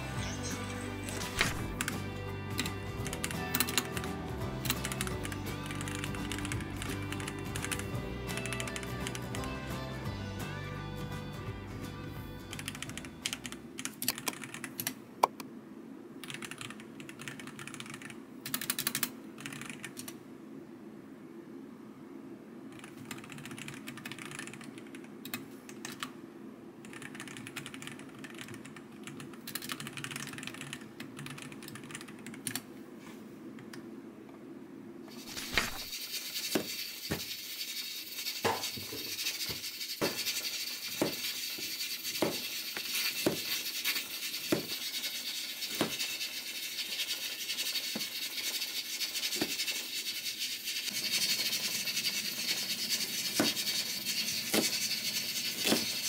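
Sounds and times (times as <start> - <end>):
low steady hum: 0.0 - 36.4
typing on computer keyboard: 2.6 - 9.4, 12.5 - 15.0, 16.2 - 20.2, 22.7 - 26.1, 26.8 - 32.6.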